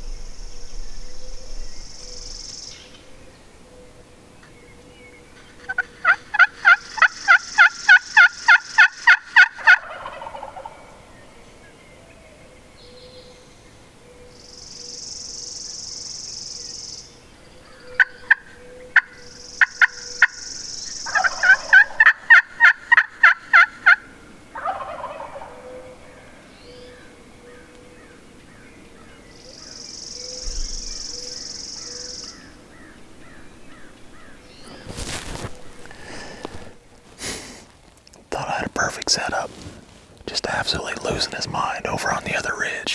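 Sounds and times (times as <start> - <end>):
distant turkey gobbling: 5.4 - 11.0, 17.6 - 28.2
turkey yelping: 5.7 - 11.0, 18.0 - 20.4, 21.0 - 26.1.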